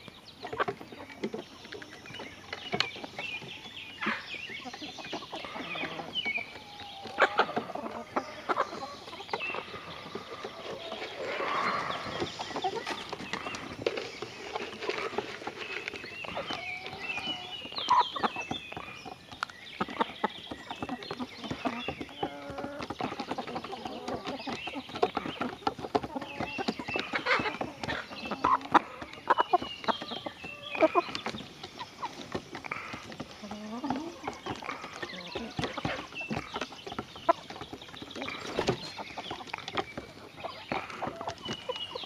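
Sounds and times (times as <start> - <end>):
chickens clucking: 0.0 - 42.0.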